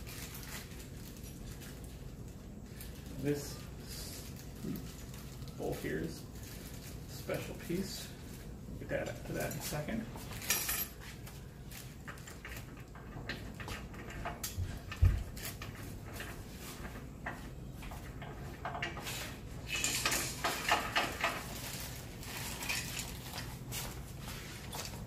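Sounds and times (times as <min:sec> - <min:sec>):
metal hardware clinking on metal: 0:09.1 - 0:11.1, 0:17.2 - 0:23.4.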